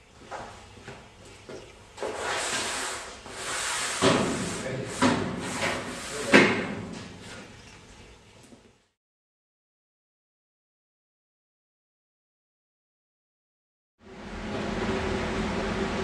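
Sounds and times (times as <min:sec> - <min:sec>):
beam scraping across floor: 0:02.0 - 0:06.6.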